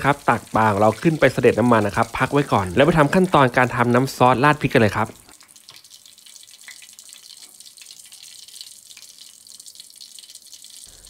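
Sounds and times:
hot oil sizzling in a wok: 0:00.0 - 0:11.0.

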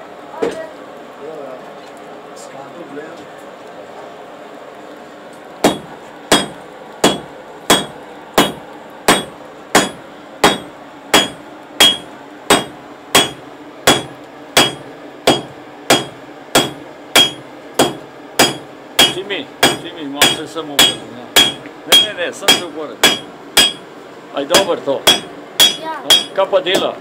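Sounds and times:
hammer striking iron on anvil: 0:05.6 - 0:23.8, 0:24.6 - 0:27.0.

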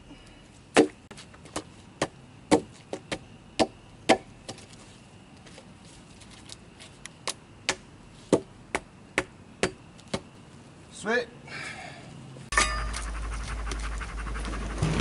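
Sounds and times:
hatchet chopping a log: 0:00.8 - 0:01.0, 0:02.0 - 0:04.3, 0:07.7 - 0:10.2.

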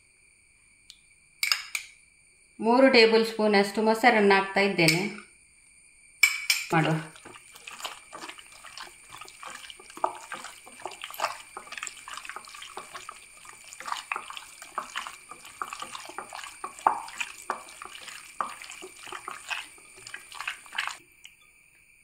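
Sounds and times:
hands squishing chicken in marinade: 0:06.7 - 0:21.0.

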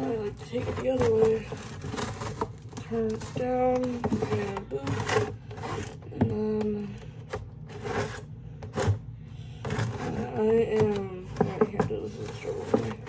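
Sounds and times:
plastic packaging crinkling: 0:00.0 - 0:06.0.

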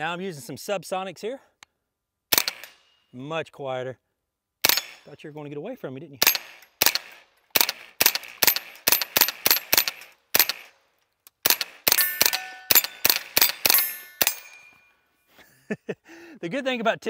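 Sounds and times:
rifle firing rapidly: 0:02.3 - 0:02.7, 0:06.2 - 0:10.7, 0:11.4 - 0:14.4
steel targets ringing: 0:11.9 - 0:15.0.

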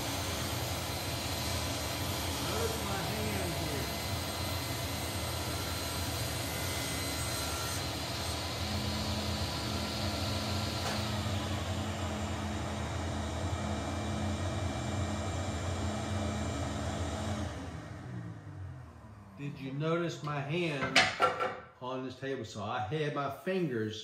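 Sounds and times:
saw blade running freely: 0:00.0 - 0:12.0
table saw cutting wood: 0:00.0 - 0:18.8.

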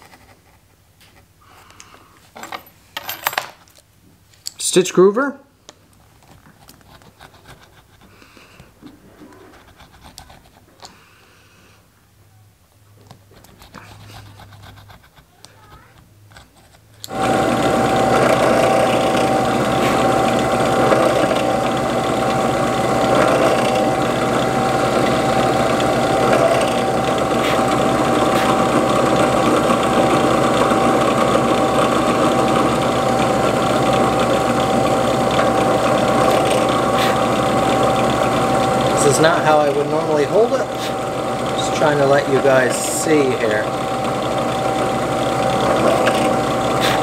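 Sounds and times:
drill bit through leather: 0:16.0 - 0:47.0
drill press motor whine: 0:17.0 - 0:47.0.

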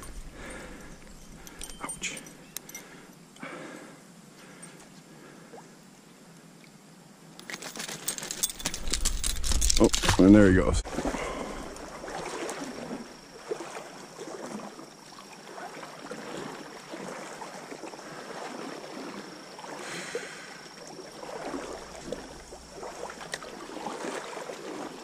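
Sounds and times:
water sloshing around wading legs: 0:07.4 - 0:25.0.

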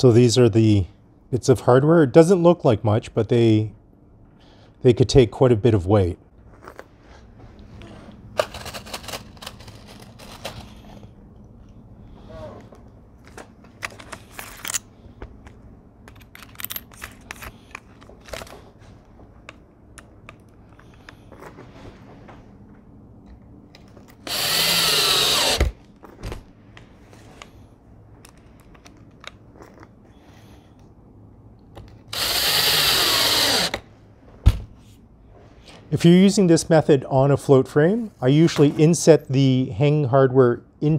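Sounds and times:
hardware clicking and rattling: 0:13.6 - 0:18.6
cordless drill running: 0:24.2 - 0:25.8, 0:32.1 - 0:33.8.

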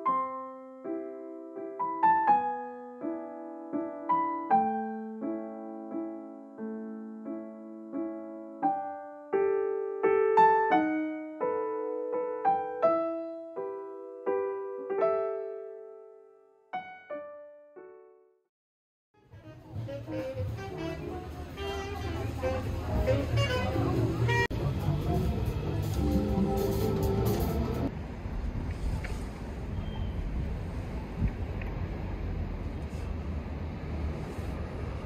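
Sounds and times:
gentle solo piano music: 0:00.0 - 0:18.3.

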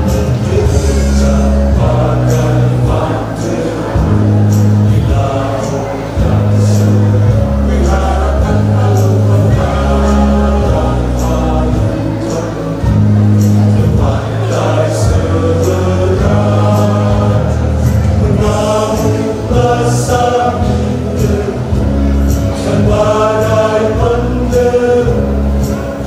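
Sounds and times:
choir singing a hymn: 0:00.0 - 0:26.0
sustained low instrumental notes: 0:00.0 - 0:26.0.

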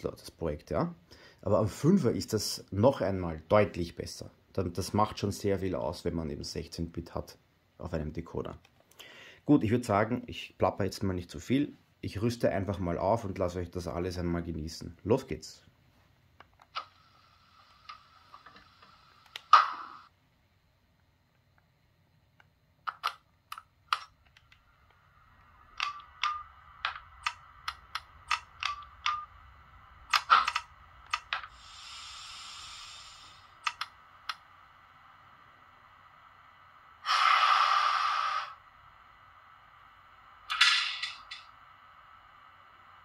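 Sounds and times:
steady electric hum: 0:00.0 - 0:43.0
air hissing: 0:16.8 - 0:20.1, 0:24.6 - 0:38.9, 0:40.5 - 0:42.9
relay and switch clicks: 0:33.6 - 0:34.4.

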